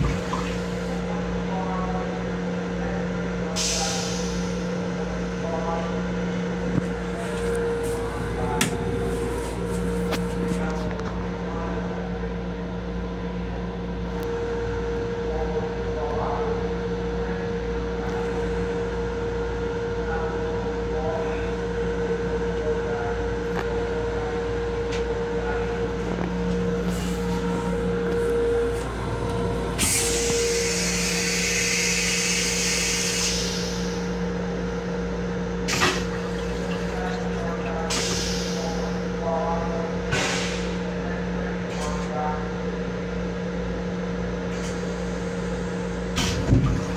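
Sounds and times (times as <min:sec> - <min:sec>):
train interior rumble: 0:00.0 - 0:42.8, 0:44.4 - 0:46.9
two-tone hum: 0:21.2 - 0:37.8.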